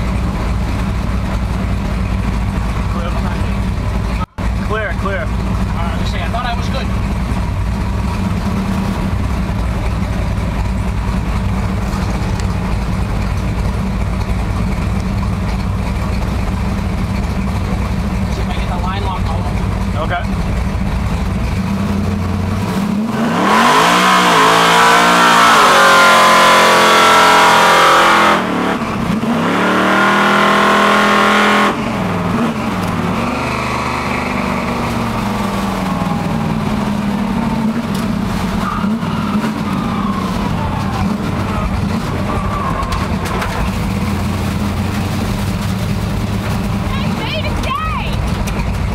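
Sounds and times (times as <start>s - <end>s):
car engine revving: 0.0s - 48.9s.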